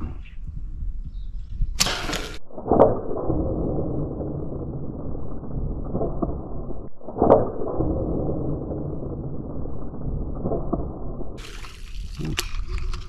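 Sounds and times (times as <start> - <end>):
low rumbling water and wind: 1.6 - 13.0
sharp snap of shot: 1.8 - 2.4.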